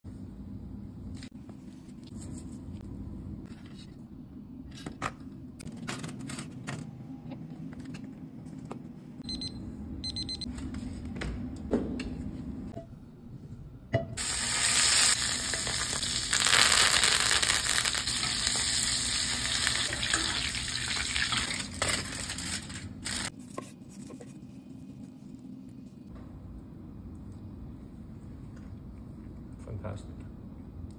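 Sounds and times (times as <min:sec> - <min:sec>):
steaks sizzling in a skillet: 0:14.2 - 0:21.6.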